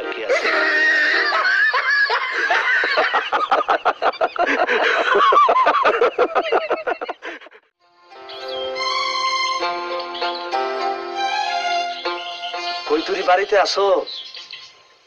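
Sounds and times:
men laughing loudly: 0:00.3 - 0:07.7
music cue: 0:07.8 - 0:13.6.

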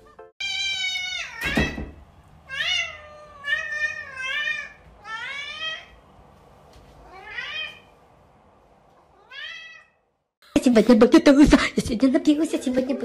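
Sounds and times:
cat meowing: 0:00.0 - 0:01.8, 0:02.5 - 0:06.0, 0:07.0 - 0:07.9, 0:09.1 - 0:10.0.

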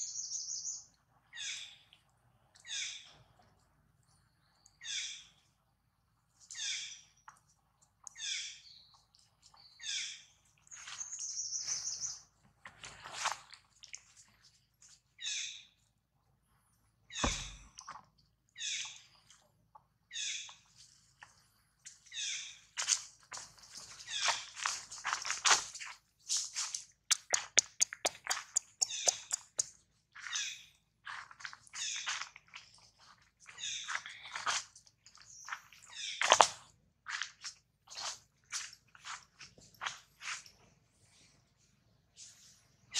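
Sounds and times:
monkey high-pitched calls: 0:28.6 - 0:29.6.

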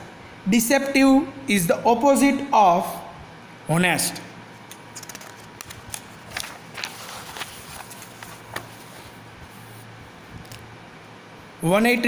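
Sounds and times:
paper page turning: 0:04.6 - 0:09.8.

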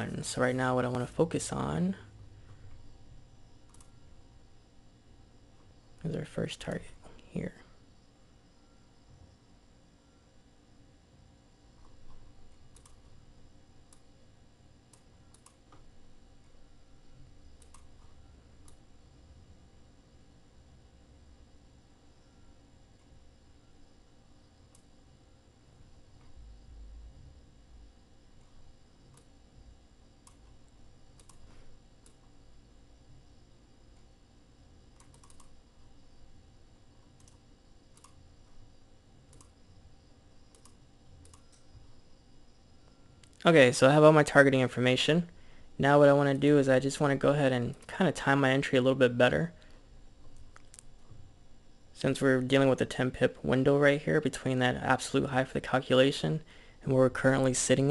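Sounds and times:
low steady room hum: 0:00.0 - 0:57.9
computer mouse clicks: 0:03.6 - 0:03.9, 0:11.8 - 0:13.1, 0:14.9 - 0:15.9, 0:17.6 - 0:18.8, 0:28.4 - 0:29.3, 0:30.2 - 0:32.3, 0:35.0 - 0:35.6, 0:37.1 - 0:38.2, 0:39.3 - 0:39.6, 0:40.5 - 0:41.7
faint computer mouse clicks: 0:31.2 - 0:32.2, 0:35.0 - 0:35.6, 0:37.2 - 0:38.2, 0:39.3 - 0:39.5.

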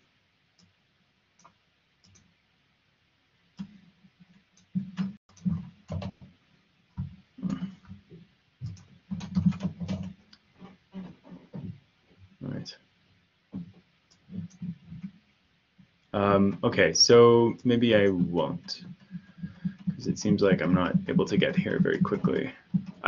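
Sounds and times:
computer keyboard typing: 0:04.6 - 0:06.2, 0:08.6 - 0:10.2, 0:17.7 - 0:23.0.

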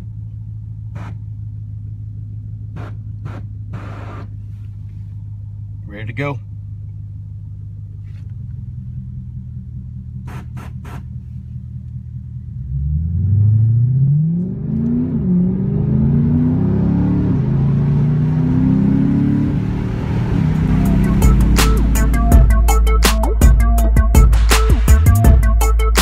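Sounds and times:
car engine idling: 0:00.0 - 0:13.0, 0:17.3 - 0:26.0
car accelerating hard with upshifts: 0:12.4 - 0:22.6
engine revving bursts: 0:12.6 - 0:23.6.

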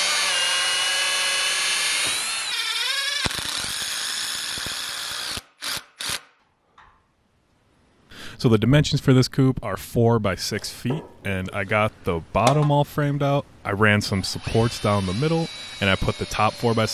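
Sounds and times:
cordless drill boring into wood: 0:00.0 - 0:06.3, 0:14.4 - 0:16.9.

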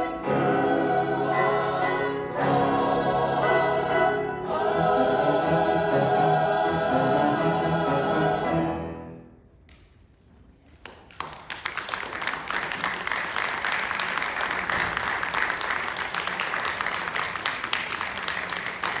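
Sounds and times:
audience applauding: 0:10.7 - 0:19.0.

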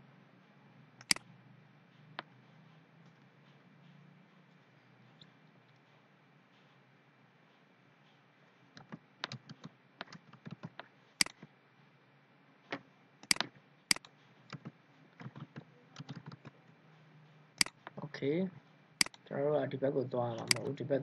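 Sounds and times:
mouse clicks: 0:01.0 - 0:01.3, 0:08.8 - 0:11.5, 0:13.2 - 0:16.5, 0:17.6 - 0:18.0, 0:20.4 - 0:20.7
keyboard key taps: 0:13.2 - 0:16.5, 0:20.4 - 0:20.7.

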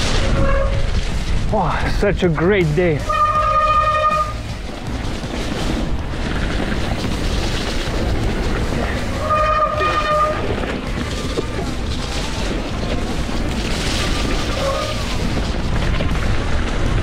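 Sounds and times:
bike rattling: 0:00.0 - 0:17.0
tyres rolling over dirt: 0:00.0 - 0:17.0
whining tone from bike: 0:03.0 - 0:04.5, 0:07.0 - 0:11.4, 0:13.5 - 0:16.0.

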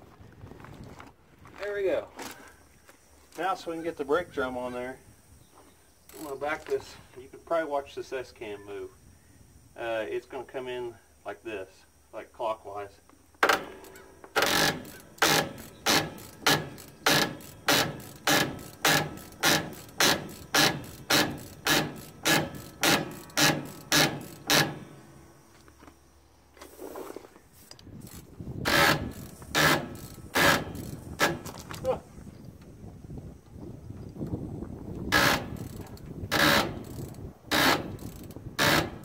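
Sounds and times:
ratcheting clicks: 0:06.0 - 0:06.8, 0:13.4 - 0:24.9, 0:27.6 - 0:31.9, 0:35.0 - 0:39.0.

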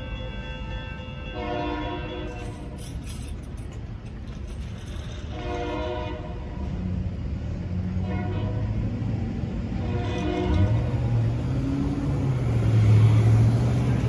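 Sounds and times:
locomotive horn blasts: 0:00.0 - 0:02.8, 0:05.2 - 0:06.8, 0:08.0 - 0:09.0, 0:09.8 - 0:11.0.

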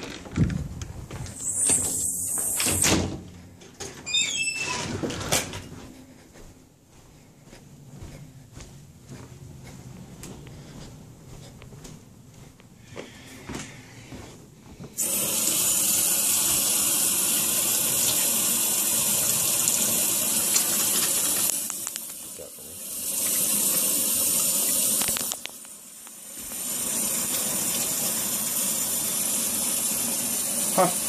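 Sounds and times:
faucet running into metal sink: 0:15.0 - 0:31.0.

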